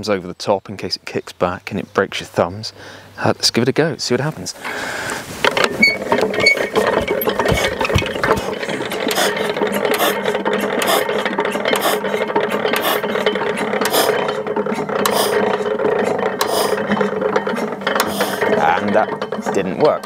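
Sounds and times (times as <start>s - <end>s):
engine turned over by hand: 4.6s - 20.0s
gear clicks: 5.4s - 20.0s.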